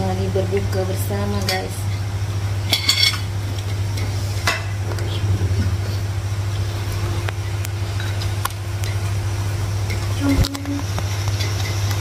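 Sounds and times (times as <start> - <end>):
steady low hum: 0.0 - 12.0
plates and cutlery clinking: 2.7 - 4.8.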